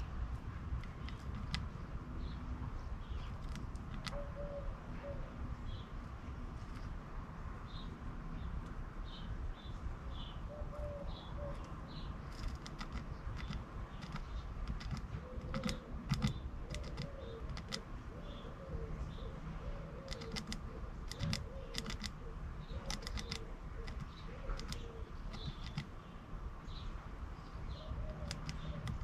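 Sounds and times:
birds pecking at feeder: 0.7s - 1.9s, 3.2s - 4.3s, 12.2s - 17.8s, 20.0s - 26.0s, 28.1s - 29.0s
pigeon cooing: 3.5s - 5.4s, 10.5s - 11.7s, 14.8s - 25.8s, 27.8s - 29.0s.

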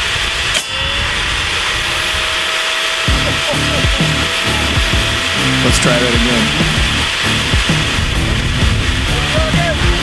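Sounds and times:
table saw running: 0.0s - 10.0s
background music: 3.1s - 10.0s.

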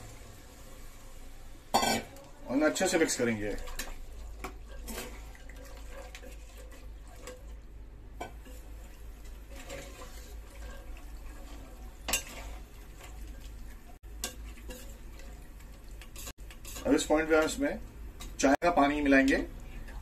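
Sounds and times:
spoon stirring thick sauce: 2.8s - 7.6s, 8.2s - 18.4s.

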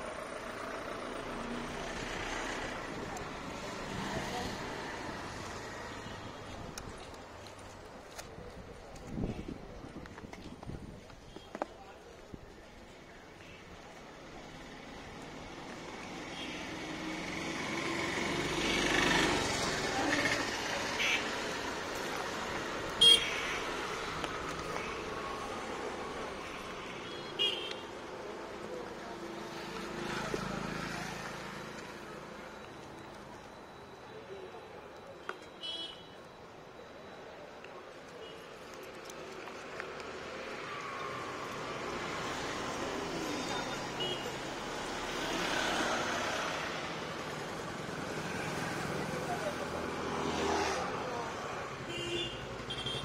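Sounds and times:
passing vehicles: 0.0s - 53.0s
street traffic: 0.0s - 53.0s
vehicle horn toot: 23.0s - 23.6s, 51.9s - 53.0s.

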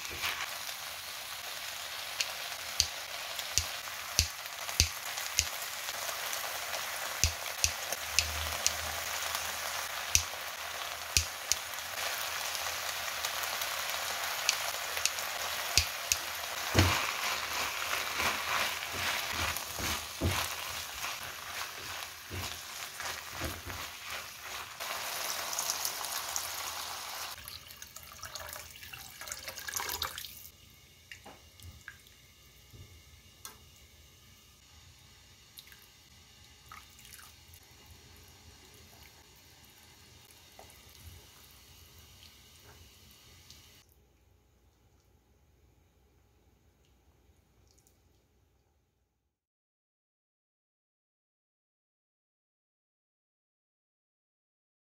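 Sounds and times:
meat sizzling in a wok: 0.0s - 27.4s.

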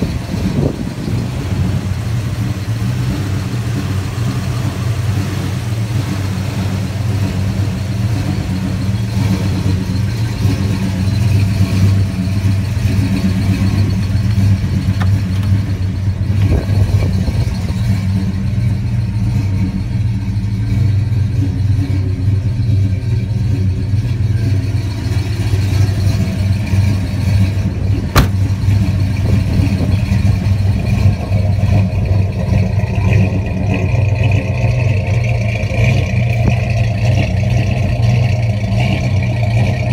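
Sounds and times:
car engine idling: 0.0s - 39.9s.

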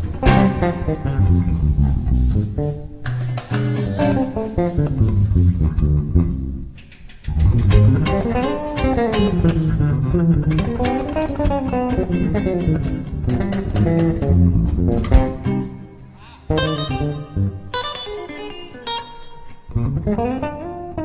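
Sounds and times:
electric bass guitar fast runs: 0.0s - 6.6s, 7.3s - 15.9s.

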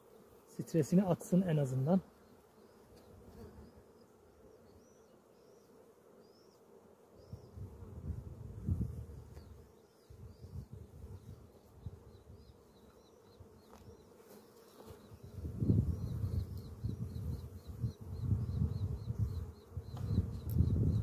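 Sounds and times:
honeybees buzzing: 0.0s - 21.0s.

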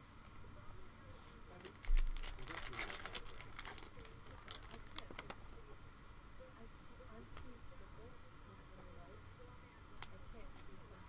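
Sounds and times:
foil wrapper crinkling: 1.6s - 5.4s.

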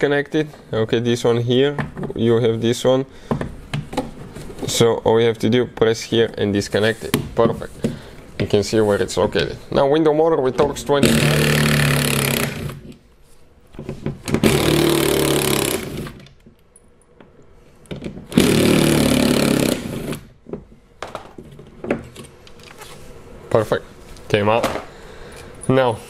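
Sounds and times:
cordless power driver running: 11.0s - 12.8s, 14.4s - 16.2s, 18.3s - 20.3s.

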